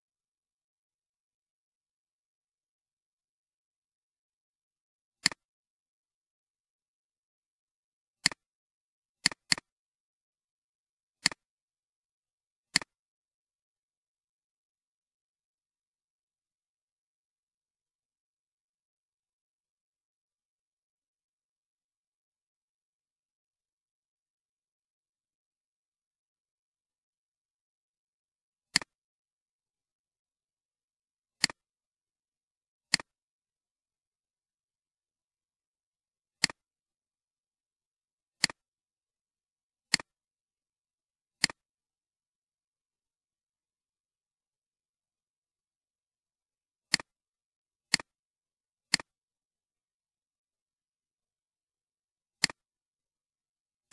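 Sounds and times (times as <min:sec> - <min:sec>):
computer mouse clicks: 0:05.2 - 0:05.5, 0:09.2 - 0:09.7, 0:11.2 - 0:11.4, 0:12.7 - 0:13.0, 0:28.7 - 0:29.0, 0:31.4 - 0:31.6, 0:32.9 - 0:33.1, 0:36.4 - 0:36.6, 0:38.4 - 0:38.6, 0:39.9 - 0:40.2, 0:41.4 - 0:41.6, 0:46.9 - 0:47.1, 0:47.9 - 0:48.1, 0:48.9 - 0:49.2, 0:52.4 - 0:52.6.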